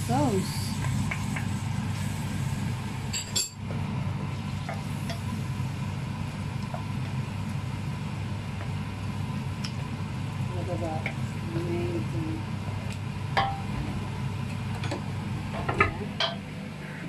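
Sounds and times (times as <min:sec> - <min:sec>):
low hum: 0:11.2 - 0:17.0.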